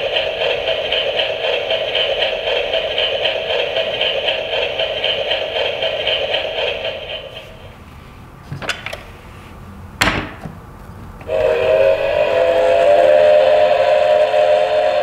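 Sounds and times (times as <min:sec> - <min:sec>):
toy train electronic chord: 0:11.3 - 0:15.0.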